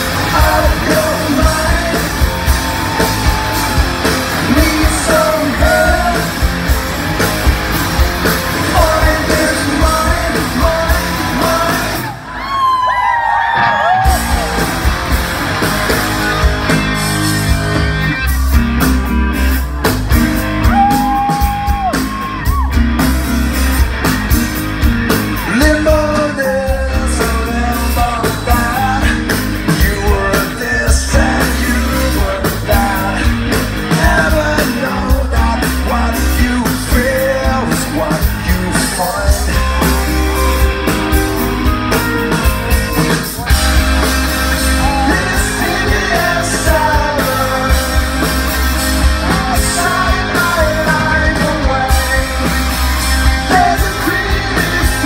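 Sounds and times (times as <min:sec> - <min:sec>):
man singing: 0:00.0 - 0:06.6, 0:08.5 - 0:12.2, 0:25.4 - 0:40.6, 0:44.5 - 0:55.0
live rock band playing: 0:00.0 - 0:55.0.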